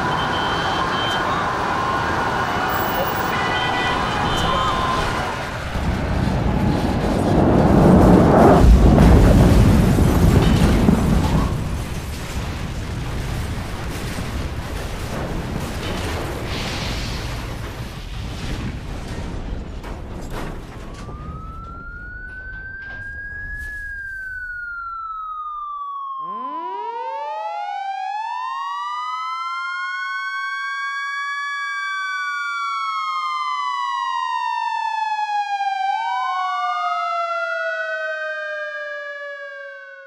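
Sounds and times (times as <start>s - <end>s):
sirens wailing: 0.0s - 16.1s, 20.6s - 40.0s
explosion rumble: 4.5s - 24.5s.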